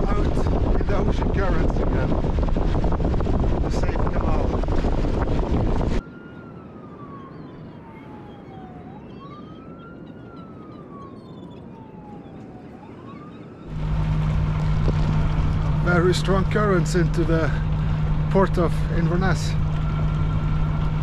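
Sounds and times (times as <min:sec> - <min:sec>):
boat engine hum: 0:00.0 - 0:21.0
siren wailing: 0:00.0 - 0:21.0
wind and water noise: 0:00.0 - 0:21.0
faint bird chirps: 0:07.2 - 0:13.7.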